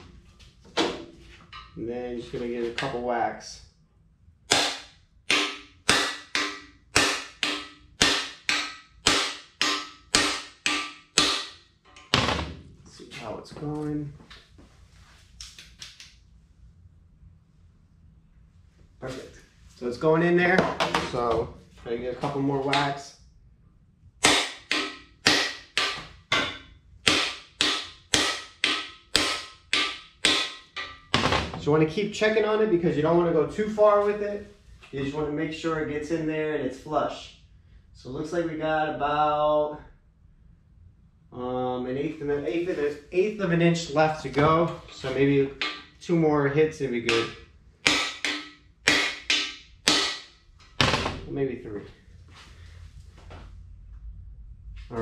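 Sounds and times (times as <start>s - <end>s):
hammer striking steel: 4.5s - 12.4s, 24.2s - 31.4s, 45.6s - 46.0s, 47.1s - 50.3s.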